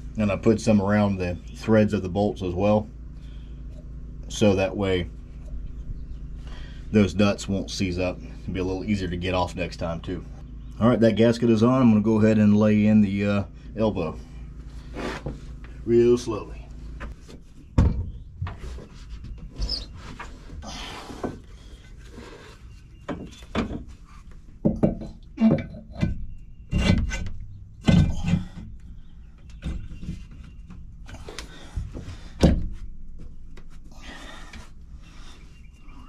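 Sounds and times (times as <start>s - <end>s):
metal knocks and thunks: 17.0s - 18.7s, 23.1s - 23.9s, 24.6s - 28.8s, 31.8s - 32.8s.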